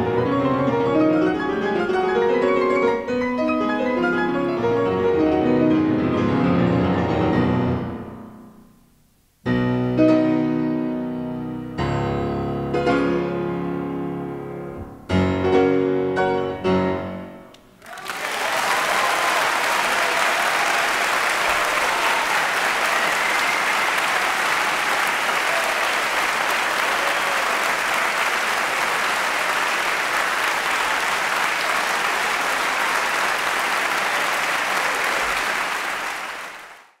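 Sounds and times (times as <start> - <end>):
audience applauding: 17.8 - 37.0.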